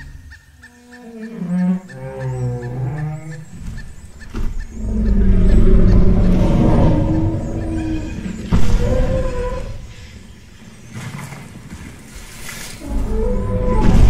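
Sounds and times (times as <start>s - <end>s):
fast faint ticking: 0.0s - 9.9s
long low dinosaur call: 4.7s - 9.9s, 12.8s - 14.0s.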